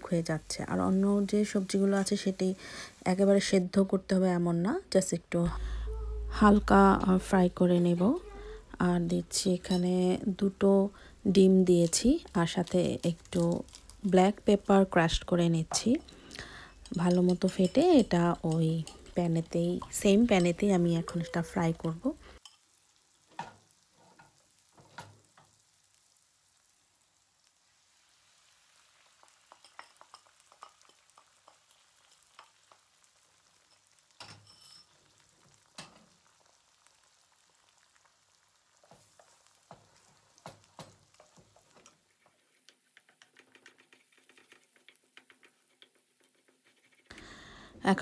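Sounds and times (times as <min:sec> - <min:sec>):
eggs sizzling in a pan: 0:00.0 - 0:48.0
wooden spoon tapping and scraping pan: 0:11.8 - 0:22.6, 0:29.2 - 0:32.9, 0:38.8 - 0:47.1.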